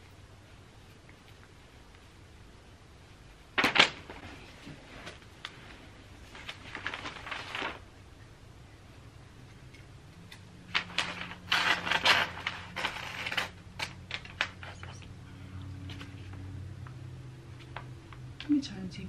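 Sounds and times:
wrapping paper rustling: 3.6s - 8.0s, 10.7s - 15.0s.

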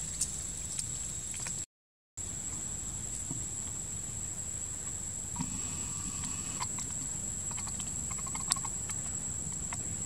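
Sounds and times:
steady high-pitched whine: 2.2s - 10.0s
monkey chewing wet clicks: 6.6s - 9.8s.

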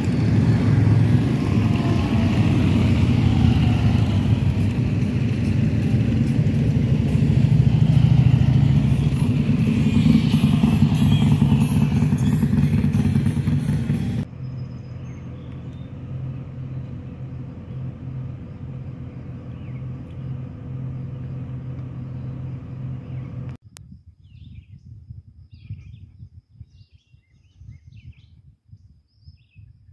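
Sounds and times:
wind buffeting microphone: 0.0s - 14.3s, 23.6s - 29.9s
vehicle rumbling on road: 0.0s - 23.6s
small birds chirping: 14.4s - 16.0s, 16.7s - 23.6s, 24.2s - 29.9s.

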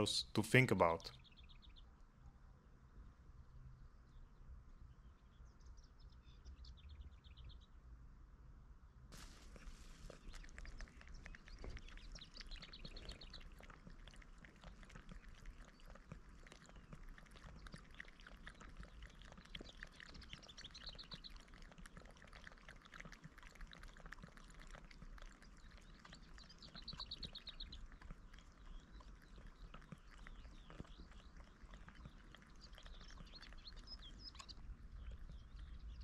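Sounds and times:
cat lapping water: 9.2s - 36.0s.

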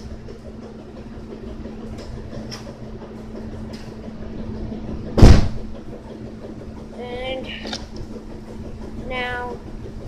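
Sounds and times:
loud bump on microphone: 5.2s - 5.6s.

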